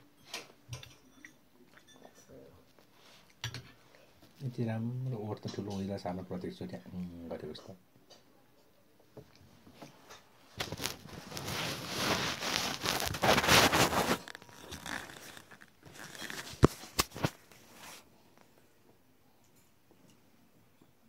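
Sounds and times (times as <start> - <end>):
phone rustling on microphone: 10.5 - 18.1.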